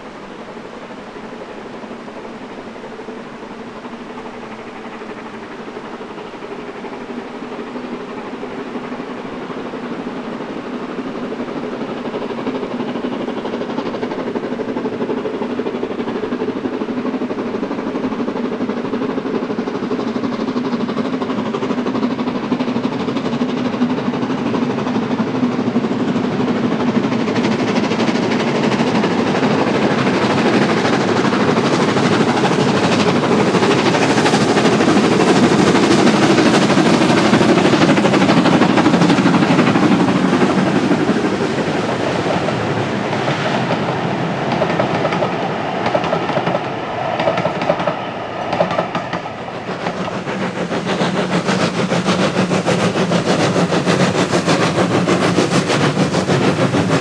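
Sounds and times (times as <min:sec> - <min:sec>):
steam locomotive approaching: 0:00.0 - 0:57.0.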